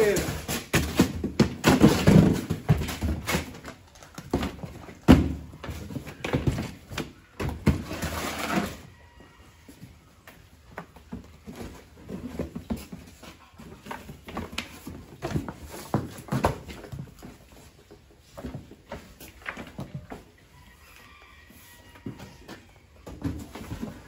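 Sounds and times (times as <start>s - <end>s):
box knocks and thuds: 0.3s - 8.1s
cardboard box scraping on concrete: 7.7s - 8.9s.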